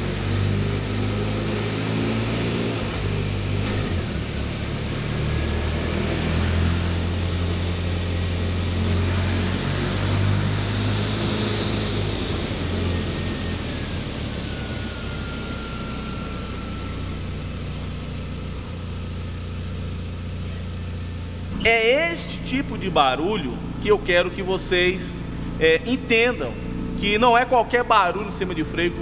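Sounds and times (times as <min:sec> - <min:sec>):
car hum on dynamometer rollers: 0:00.0 - 0:29.0
faint falling whine: 0:09.6 - 0:29.0.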